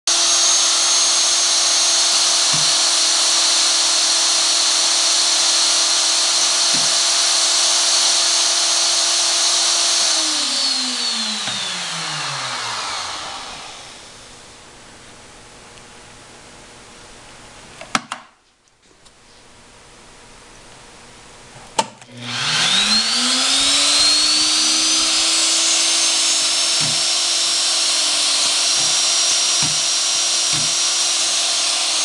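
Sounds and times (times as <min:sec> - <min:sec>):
electric motors whining: 0:00.1 - 0:14.4, 0:22.1 - 0:32.0.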